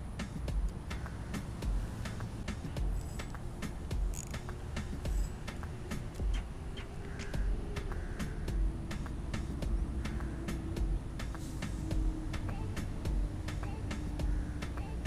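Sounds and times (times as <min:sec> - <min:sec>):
fishing reel ticking: 0:02.9 - 0:06.3.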